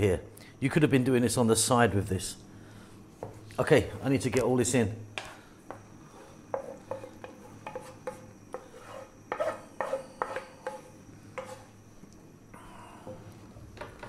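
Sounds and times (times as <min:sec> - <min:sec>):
spatula scraping metal pan: 0:06.1 - 0:11.8.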